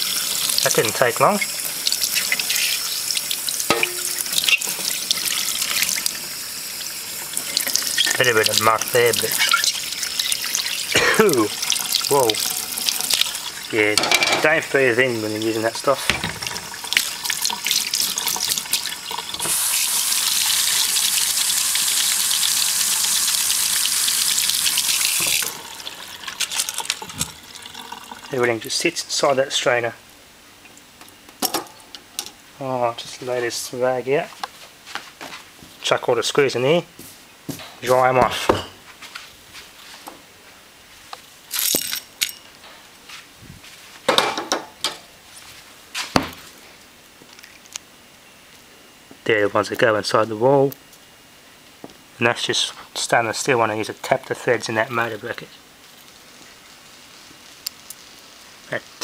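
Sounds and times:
tap running into metal sink: 3.7 - 4.9, 25.2 - 25.6, 26.4 - 27.4
small metal screws clinking: 41.5 - 42.5.

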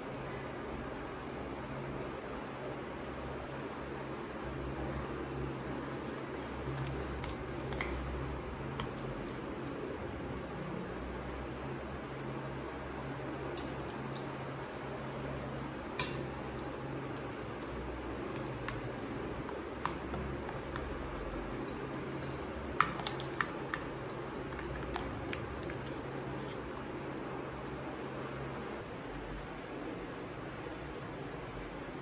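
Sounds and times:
spoon stirring wet batter: 3.4 - 11.0, 13.2 - 27.4
spoon clinking against bowl: 16.0 - 16.4.

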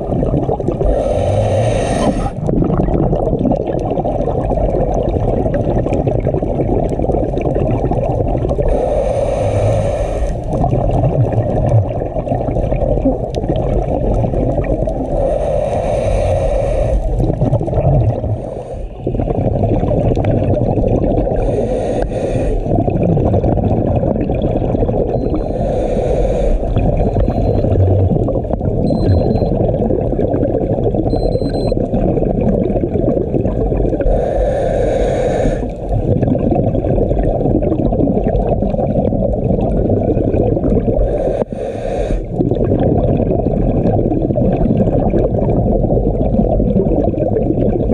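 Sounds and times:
muffled underwater noise: 0.0 - 3.3
regulator bubbles gurgling: 0.0 - 47.9.

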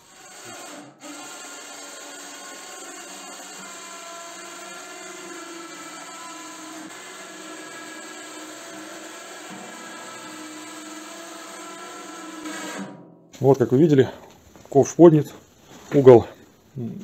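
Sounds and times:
electric winch motor whining: 0.0 - 12.9.

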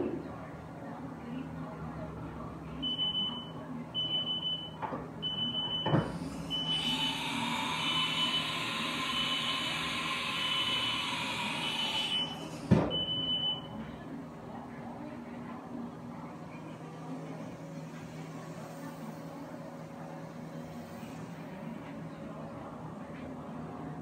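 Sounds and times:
mill machine whirring: 5.4 - 14.0.

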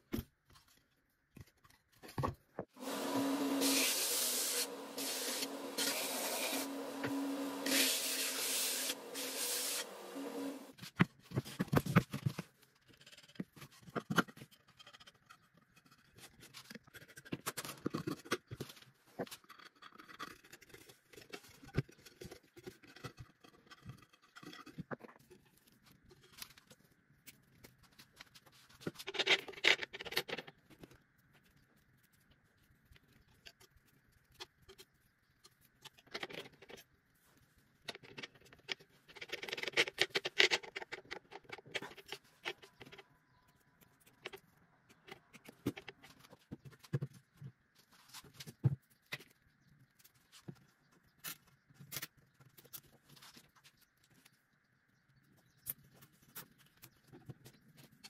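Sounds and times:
belt sander running: 2.8 - 10.7.

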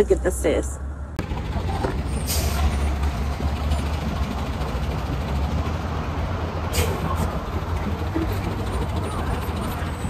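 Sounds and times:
large engine idling: 1.2 - 10.0.

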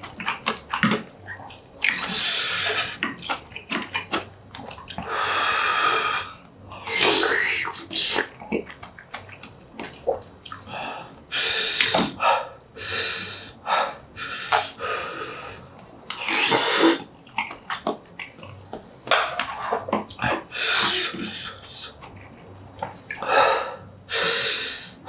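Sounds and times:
wet chewing with lip smacks: 0.0 - 5.1, 8.2 - 12.1, 17.2 - 20.4, 21.9 - 23.2
hissing breath through mouth: 20.5 - 22.0, 23.2 - 25.0.

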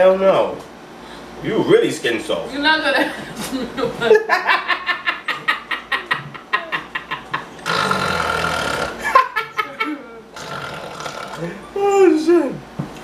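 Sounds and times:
man and woman laughing: 3.1 - 7.6, 9.0 - 10.2.

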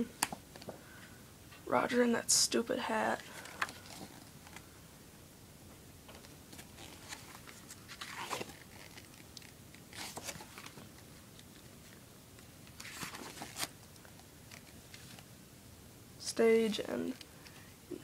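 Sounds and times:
paper pages swishing: 6.6 - 9.1.

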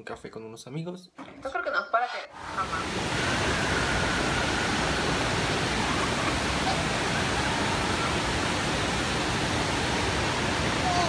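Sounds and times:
fountain water splashing: 2.4 - 11.0.

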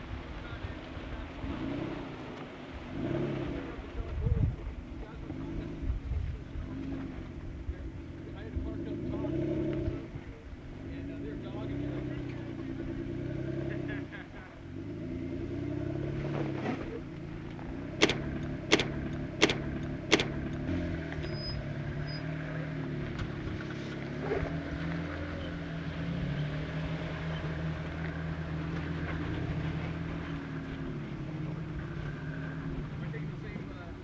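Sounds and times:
car engine revving: 0.3 - 4.1, 4.7 - 34.0
sharp knocks: 18.0 - 20.5.

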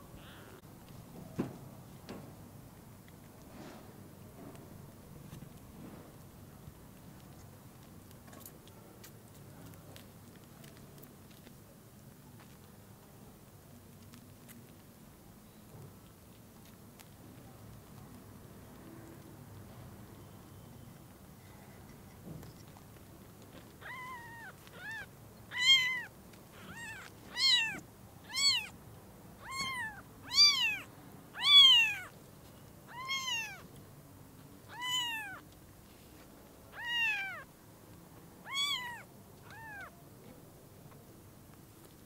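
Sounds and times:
kitten mewing: 0.0 - 0.6, 23.8 - 28.8, 29.4 - 32.1, 32.9 - 33.7, 34.7 - 35.4, 36.7 - 37.5, 38.4 - 40.0.

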